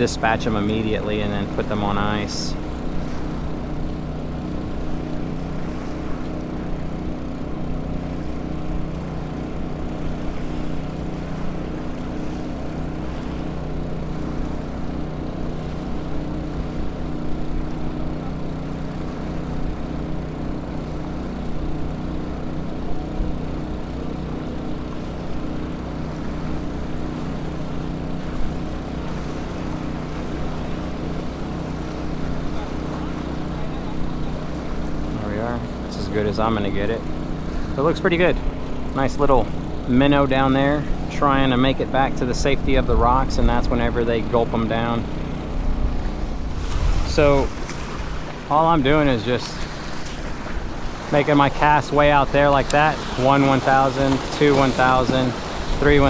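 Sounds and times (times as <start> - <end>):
portable generator engine humming: 0.0 - 56.0.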